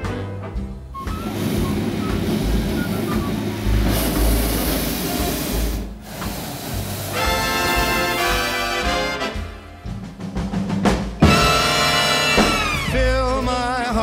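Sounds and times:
propane burner roaring: 1.0s - 8.5s.

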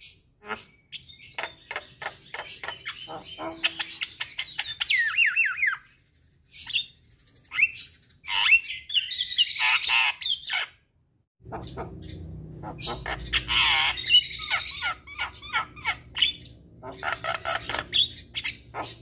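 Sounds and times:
bird squawking and whistling: 0.4s - 5.8s, 11.5s - 19.0s.

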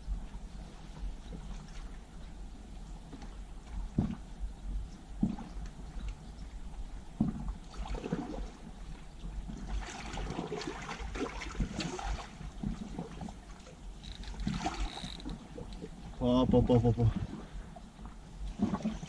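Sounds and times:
sea water lapping against rocks: 7.2s - 19.0s.

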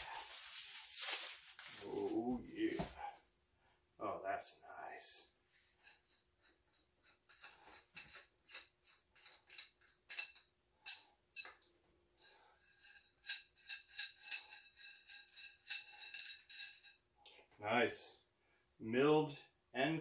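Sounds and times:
metallic clicks and scraping: 5.8s - 17.4s.

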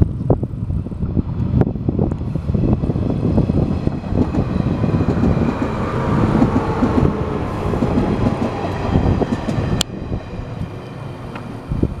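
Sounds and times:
train wheels rumbling: 0.8s - 12.0s
wheels clacking over track: 3.8s - 9.9s.

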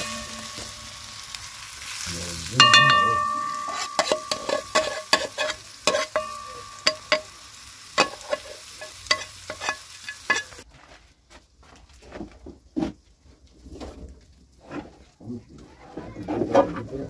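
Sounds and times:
metal spoon scraping pot: 0.0s - 2.0s, 2.6s - 10.6s
food sizzling in hot oil: 0.0s - 10.7s.

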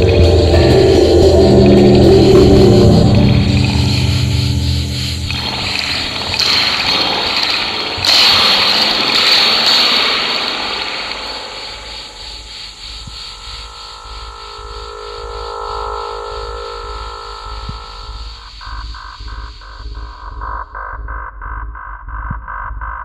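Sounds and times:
sustained electronic tones: 0.0s - 8.3s, 13.0s - 21.6s
electronic rushing noise: 0.0s - 20.6s.

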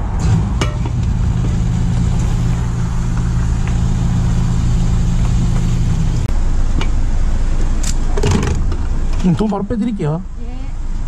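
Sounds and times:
fuel pump humming: 0.1s - 7.6s.

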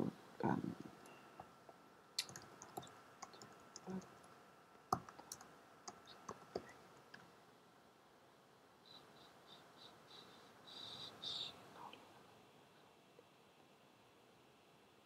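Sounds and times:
computer keyboard keystrokes: 2.2s - 4.1s, 4.9s - 6.7s.

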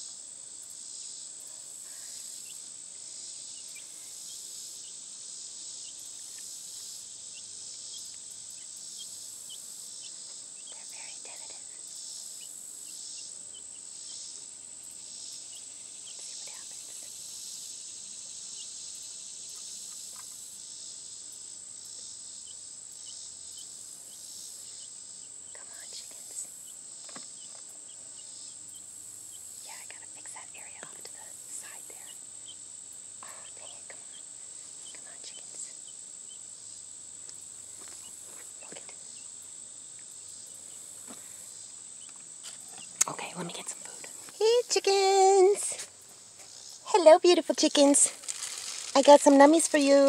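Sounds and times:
high-pitched insect chorus: 0.0s - 50.0s
light rustles: 47.9s - 50.0s.

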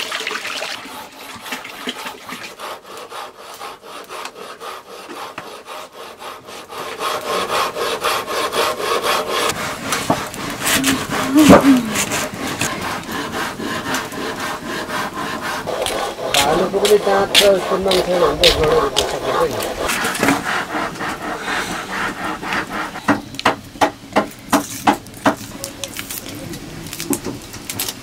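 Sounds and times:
rapid scraping strokes: 1.0s - 23.1s.

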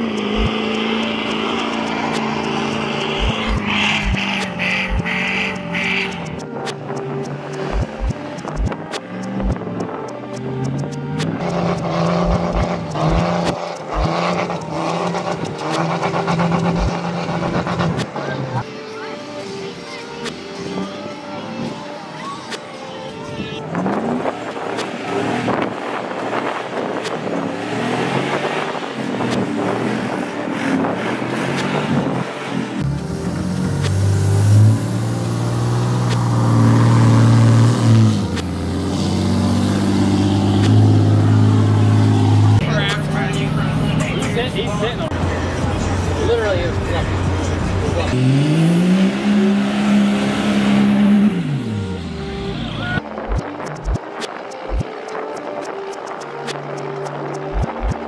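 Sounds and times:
wheels spinning in sand: 0.0s - 4.6s
tires spinning in sand: 0.0s - 5.4s, 11.2s - 18.6s, 23.7s - 42.6s, 45.2s - 54.7s
diesel truck engine revving: 0.0s - 18.6s, 23.7s - 54.0s.

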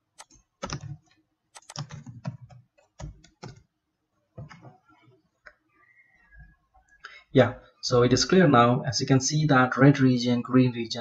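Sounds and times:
computer keyboard typing: 0.2s - 3.7s.

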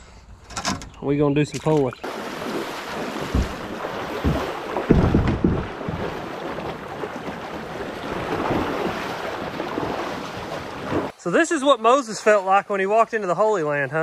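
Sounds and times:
water rushing over rocks: 2.0s - 11.1s
dull low thumps: 2.9s - 8.5s.

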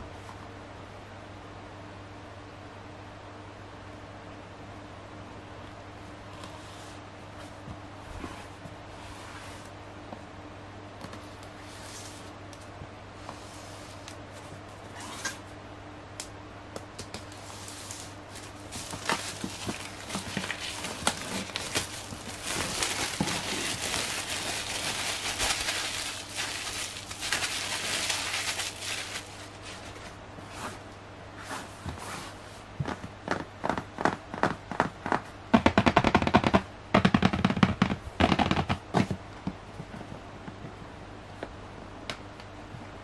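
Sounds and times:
plastic shrink-wrap crinkling: 17.3s - 30.2s
taps on cardboard box: 32.8s - 39.6s.

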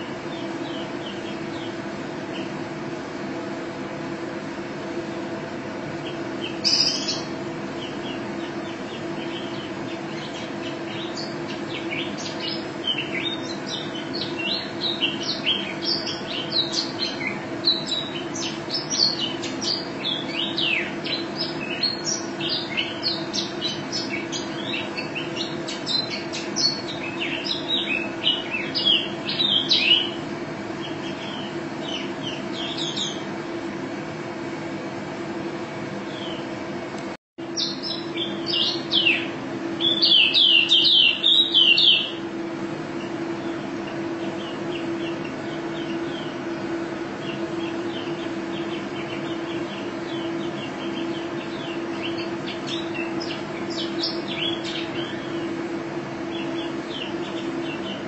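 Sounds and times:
steady low hum: 0.0s - 58.0s
small bird chirping rapidly: 6.0s - 33.2s, 37.6s - 42.2s, 43.0s - 55.5s.

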